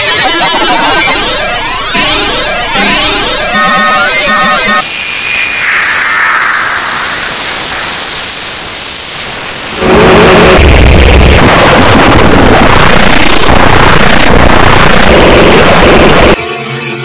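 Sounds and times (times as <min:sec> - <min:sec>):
loud harsh noise: 0:00.0 - 0:17.0
high whistle: 0:03.5 - 0:09.4
heavy bass rumble: 0:09.8 - 0:16.4.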